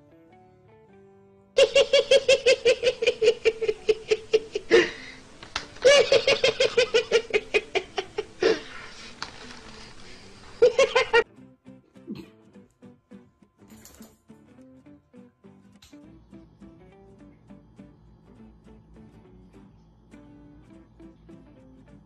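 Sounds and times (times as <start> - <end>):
man laughing hard: 1.6 - 9.2, 10.4 - 11.2
gasping in-breaths: 4.7 - 5.4, 8.4 - 10.6.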